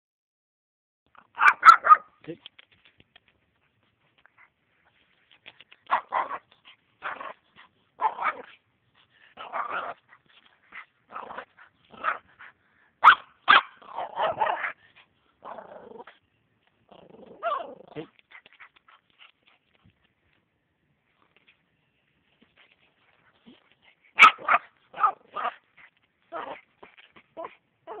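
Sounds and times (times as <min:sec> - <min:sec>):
small dog barking and whining: 0:01.1 - 0:02.2, 0:05.8 - 0:08.6, 0:09.3 - 0:14.8, 0:16.9 - 0:19.3, 0:22.3 - 0:28.0.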